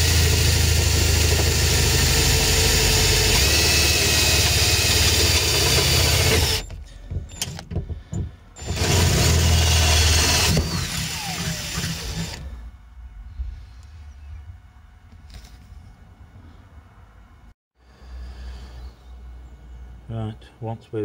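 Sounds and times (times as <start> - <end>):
cordless drill drilling metal: 0.0 - 6.8, 8.6 - 12.6.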